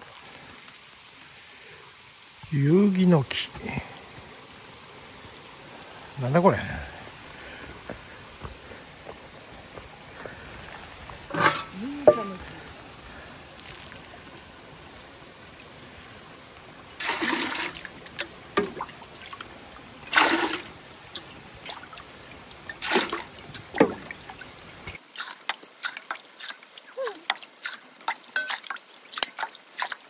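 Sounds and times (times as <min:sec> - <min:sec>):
water splashing into metal bucket: 0:11.3 - 0:12.6, 0:17.0 - 0:19.4, 0:20.0 - 0:22.1, 0:22.7 - 0:30.0.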